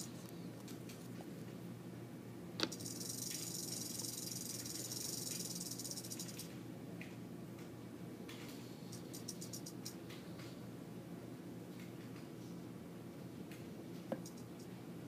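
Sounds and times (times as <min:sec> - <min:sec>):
sharp click: 0:02.6 - 0:03.5
rattlesnake rattle buzzing: 0:02.6 - 0:06.5, 0:08.9 - 0:10.0.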